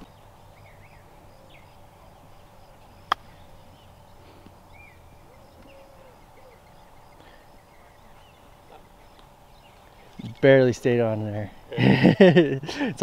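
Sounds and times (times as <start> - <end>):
golf club striking ball: 3.0 - 3.4.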